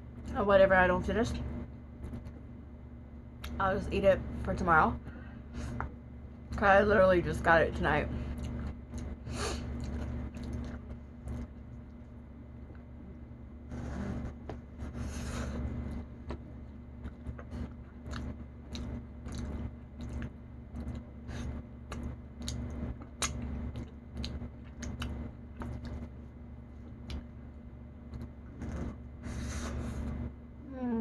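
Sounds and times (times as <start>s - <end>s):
steady low hum: 0.0s - 31.0s
person chewing food: 8.4s - 12.0s, 13.8s - 26.2s.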